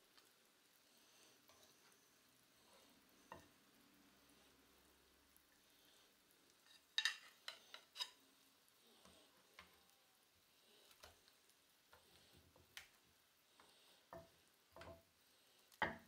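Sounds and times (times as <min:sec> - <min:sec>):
butter and oil sizzling: 0:00.0 - 0:16.0
tongs clicking and clinking: 0:06.6 - 0:08.2.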